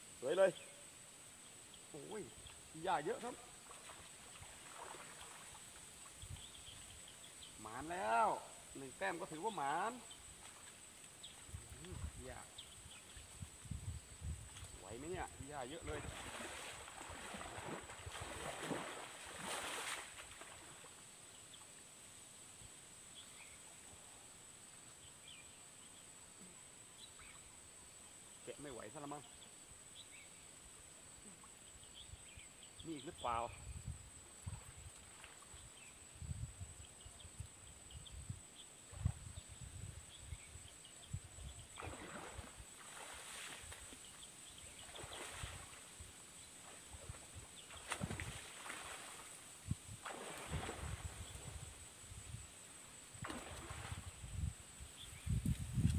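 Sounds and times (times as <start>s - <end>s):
faint outdoor hiss: 0.0s - 55.9s
water splashing and sloshing: 3.0s - 6.2s, 9.8s - 12.1s, 14.5s - 21.0s, 34.5s - 35.6s, 41.7s - 51.8s, 53.1s - 54.3s
wind buffeting microphone: 13.3s - 14.6s, 53.7s - 55.9s.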